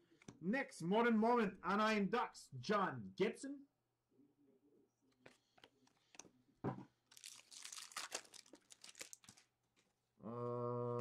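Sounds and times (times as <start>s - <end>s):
card pack wrapper crinkling: 7.1s - 9.9s.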